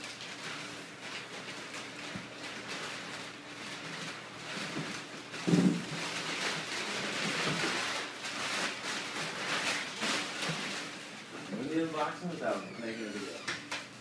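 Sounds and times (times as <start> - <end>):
packing paper rustling and crinkling: 0.0 - 14.0
dull thump: 5.5 - 5.8.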